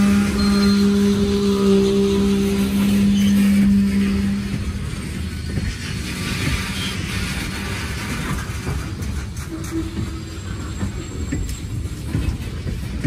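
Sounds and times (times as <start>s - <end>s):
low hum: 0.0s - 5.6s
train wheels rumbling on rails: 0.0s - 13.0s.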